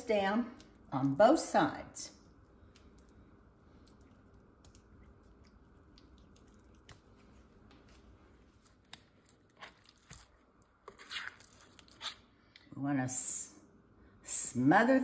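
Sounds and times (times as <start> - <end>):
low room hum: 0.0 - 15.0
wet squishing of hands on meat: 2.2 - 12.7.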